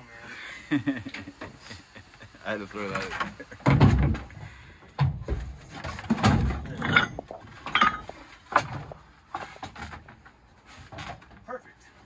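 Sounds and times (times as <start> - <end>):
wooden frames knocking and scraping: 2.9 - 11.5
heavy thumps and clatters: 3.0 - 11.5.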